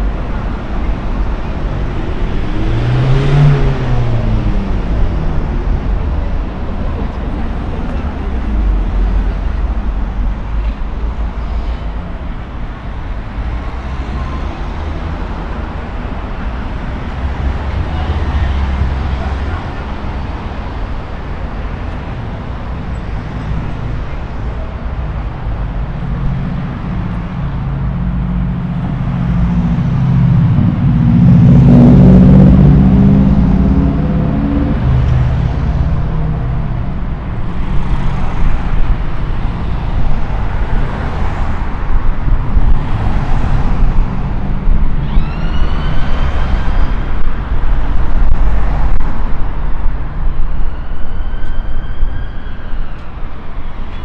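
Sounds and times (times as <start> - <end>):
traffic rumble: 0.0 - 54.0
vehicle engine drone: 0.0 - 54.0
short rising squeal: 45.0 - 47.1.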